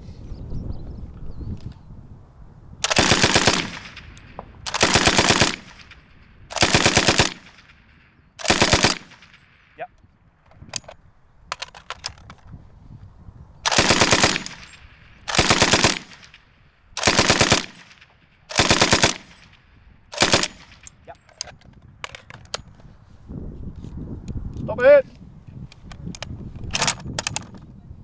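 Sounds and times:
machine gun firing bursts: 2.8 - 4.0, 4.7 - 7.8, 8.4 - 9.4, 13.7 - 14.7, 15.3 - 16.4, 17.0 - 19.5, 20.1 - 20.8.

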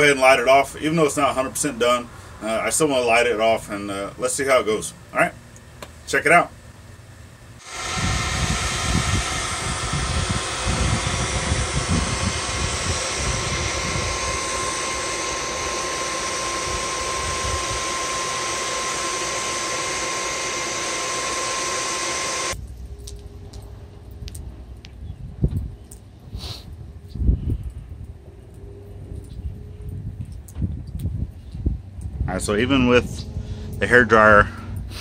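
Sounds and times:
hair dryer blowing air: 7.6 - 22.6
low rumble: 7.6 - 25.8, 27.6 - 34.9.

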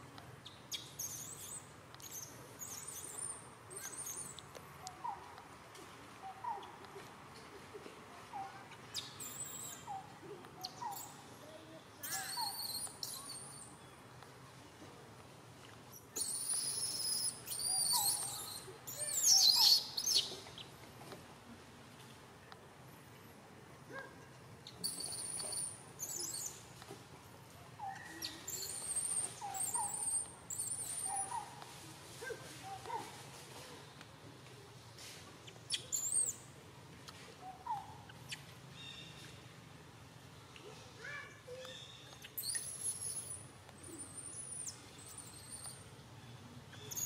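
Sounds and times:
macaques squeaking and chirping: 0.4 - 5.3, 8.4 - 11.2, 12.0 - 13.8, 15.9 - 20.7, 24.6 - 26.6, 27.8 - 31.7, 35.4 - 36.5, 41.6 - 45.9, 46.7 - 47.0.

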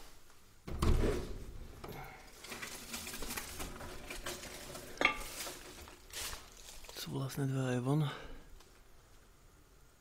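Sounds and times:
door thumping open: 0.6 - 1.5
footsteps through dry leaves: 5.2 - 7.1.

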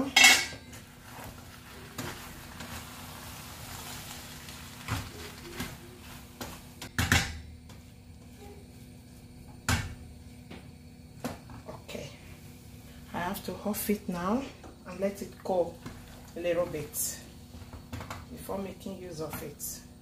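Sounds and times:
wooden spoon stirring thick food: 0.7 - 6.8.

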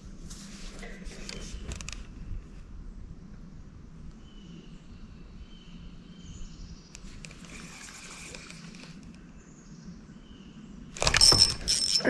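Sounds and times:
faint clicks and rustles: 0.2 - 2.6, 6.9 - 9.2.

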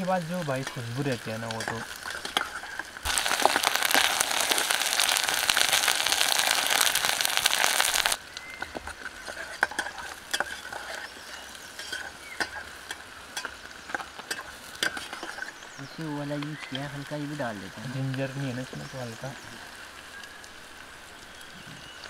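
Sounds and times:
vegetables sizzling in hot oil: 0.0 - 22.0
metal spatula stirring pot: 0.5 - 4.2, 8.7 - 15.6.

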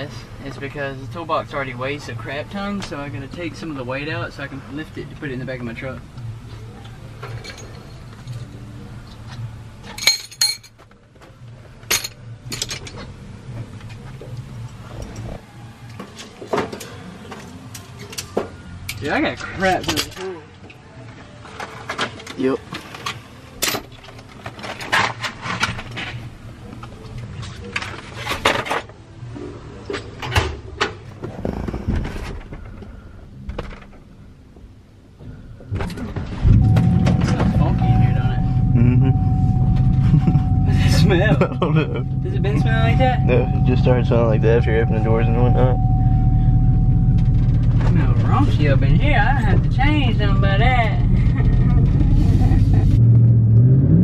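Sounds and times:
metal tools clinking: 7.3 - 8.5, 9.9 - 10.8
steady low hum: 31.4 - 54.0.

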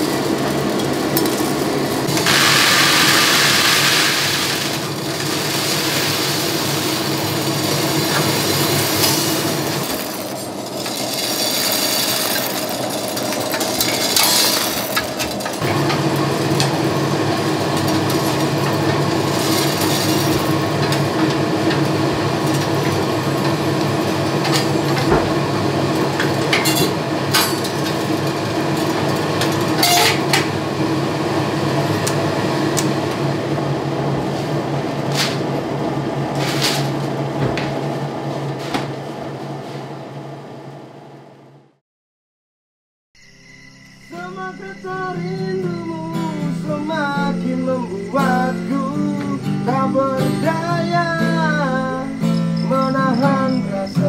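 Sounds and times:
coffee beans rattling on metal tray: 0.0 - 15.9, 16.5 - 25.0
motor and fan hum: 0.0 - 41.6.

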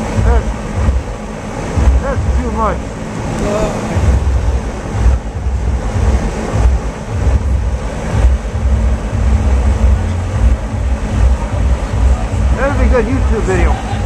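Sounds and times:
fan wind buffeting microphone: 0.0 - 14.0.

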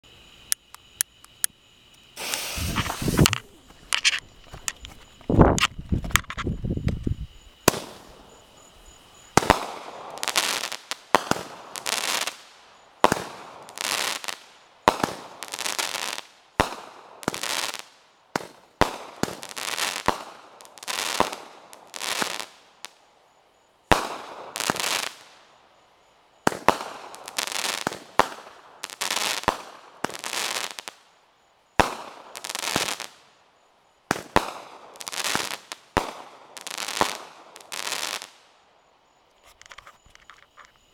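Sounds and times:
firework shots popping and hissing: 2.1 - 8.4, 9.3 - 23.0, 23.9 - 25.4, 26.4 - 31.0, 31.8 - 33.3, 34.1 - 38.5.

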